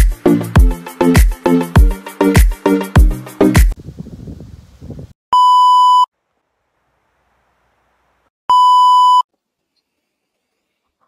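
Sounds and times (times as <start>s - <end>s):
electronic test-tone beep: 5.4s - 6.1s, 8.5s - 9.3s.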